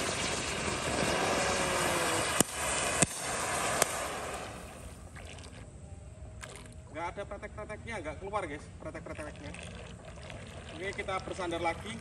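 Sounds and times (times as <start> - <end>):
firework fountain hissing: 0.0 - 5.0.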